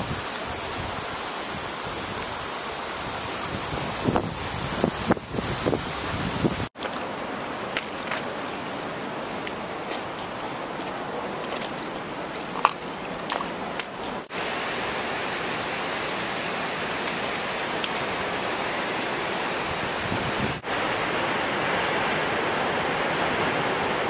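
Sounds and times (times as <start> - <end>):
waterfall roaring: 0.0 - 24.0
footsteps on rocky gravel: 7.7 - 14.1.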